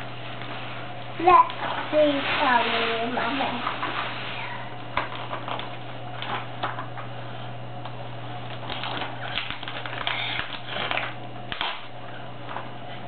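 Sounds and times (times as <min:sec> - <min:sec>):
wrapping paper tearing and crinkling: 0:00.6 - 0:06.5, 0:08.5 - 0:11.9.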